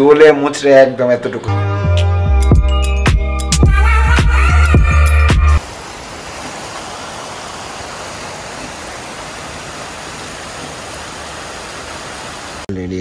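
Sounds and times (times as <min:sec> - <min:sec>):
steady rain falling: 0:05.6 - 0:12.7.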